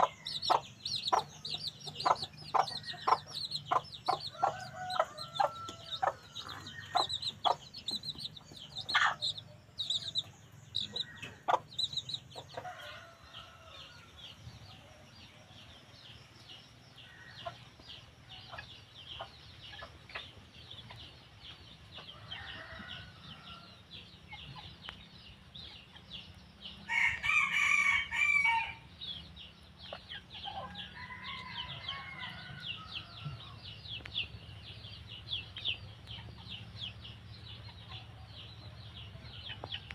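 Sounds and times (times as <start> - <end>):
hen clucking: 0.0 - 13.1
chicks peeping: 0.0 - 16.2, 16.8 - 28.2, 28.8 - 39.9
rooster crowing: 4.3 - 7.2, 12.6 - 14.2, 26.9 - 28.8, 30.8 - 33.5.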